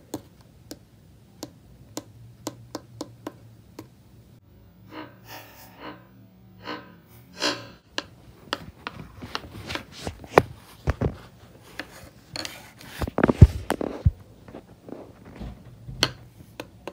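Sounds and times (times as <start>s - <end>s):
hard objects scraping and knocking: 4.9s - 16.9s.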